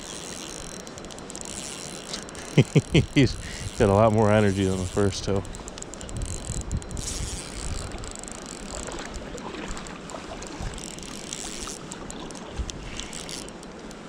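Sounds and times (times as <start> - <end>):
wind buffeting microphone: 2.8 - 11.2.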